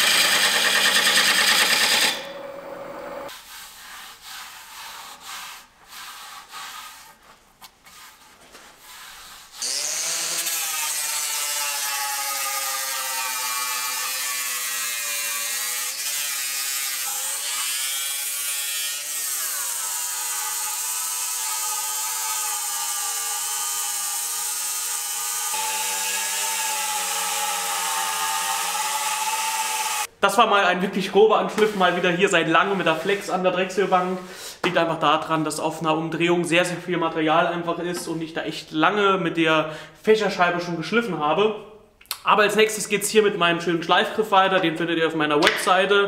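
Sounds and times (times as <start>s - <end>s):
angle grinder sanding wood: 0.0s - 7.2s, 8.8s - 30.1s
hand rubbing over wood: 3.3s - 9.6s.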